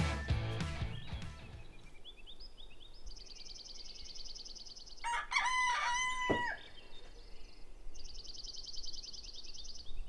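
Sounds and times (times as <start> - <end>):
songbird trilling: 0.9 - 5.2, 6.0 - 10.0
rooster crowing: 5.0 - 6.7.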